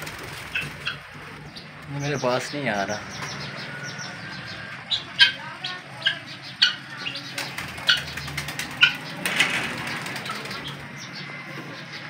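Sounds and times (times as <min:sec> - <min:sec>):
pigeon wings fluttering: 0:00.0 - 0:01.4, 0:07.3 - 0:11.0
birds giving sharp calls: 0:00.0 - 0:12.0.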